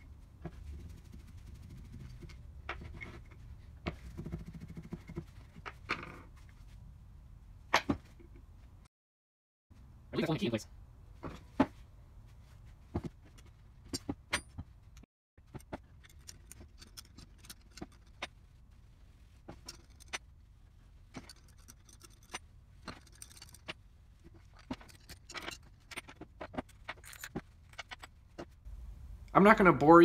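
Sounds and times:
metal parts clicking and clinking: 15.4 - 18.4, 19.5 - 20.3, 21.1 - 28.2.

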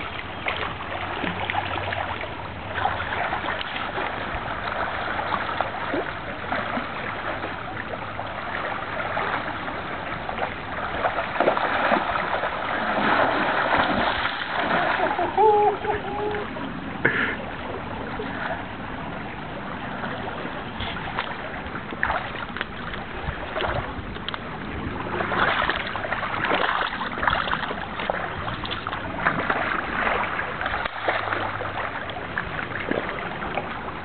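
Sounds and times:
creek water running: 0.0 - 34.0
fish splashing at surface: 10.4 - 16.4.

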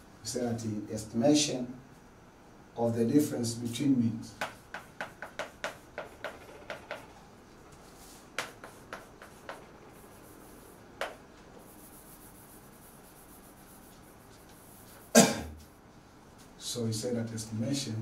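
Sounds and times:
loud knock: 4.4 - 7.1
chalk tapping on blackboard: 4.4 - 7.2, 7.8 - 15.8
faint chalk scraping: 4.4 - 16.0.

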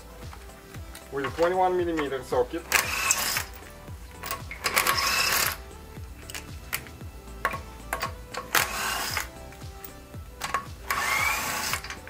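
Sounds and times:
impact wrench bursts: 1.2 - 5.6, 6.2 - 9.4, 10.4 - 12.0.

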